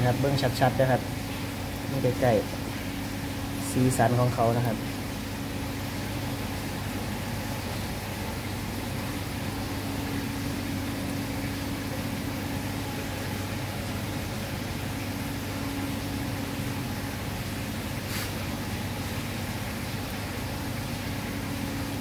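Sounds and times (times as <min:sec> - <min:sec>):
low machine hum: 0:00.0 - 0:22.0
even hiss: 0:18.0 - 0:18.5.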